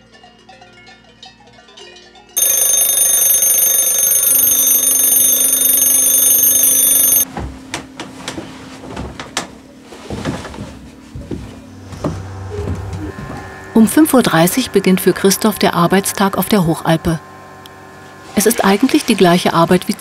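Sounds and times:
alarm clock ringing: 2.4 - 7.2.

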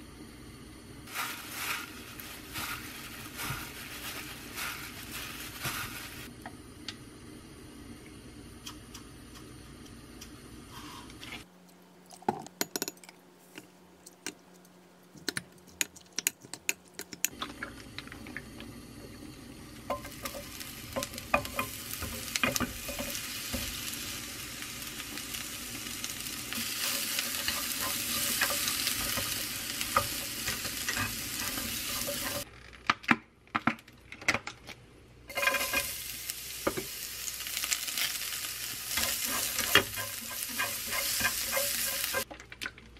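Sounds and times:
vegetables sizzling in oil: 1.0 - 6.4, 18.8 - 32.5, 35.3 - 42.3
utensils clicking on dishes: 26.8 - 32.5, 39.0 - 42.3.

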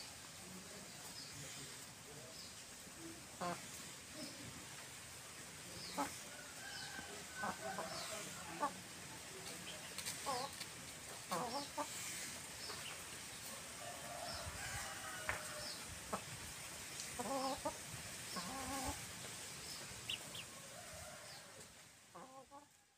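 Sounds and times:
hens clucking: 3.4 - 4.9, 5.8 - 16.4, 17.0 - 22.7.

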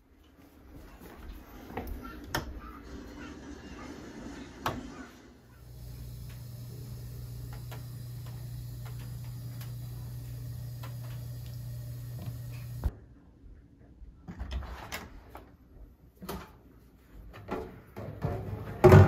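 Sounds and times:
low electrical hum: 5.4 - 14.2.

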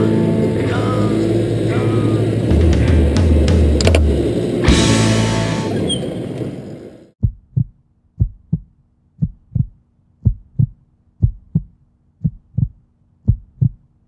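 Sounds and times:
heartbeat thumps: 7.2 - 13.9.

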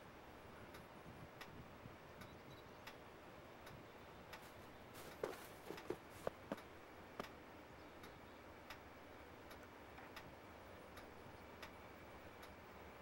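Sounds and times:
soft ticks: 0.7 - 1.6, 2.2 - 3.0, 3.6 - 7.4, 8.0 - 10.3, 10.9 - 11.8, 12.4 - 12.6.

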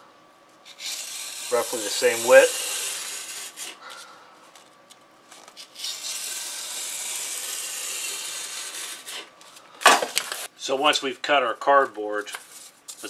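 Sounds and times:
knife scraping through cardboard: 0.7 - 3.8, 5.6 - 9.3.

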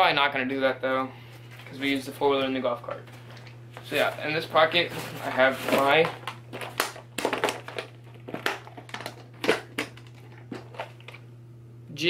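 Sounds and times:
plastic box clicks and knocks: 5.6 - 10.9.

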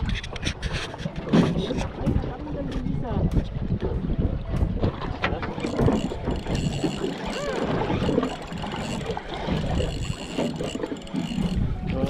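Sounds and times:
water on a boat hull: 0.0 - 12.0
wind buffeting the microphone: 0.0 - 12.0
spinning reel winding: 5.6 - 11.7.

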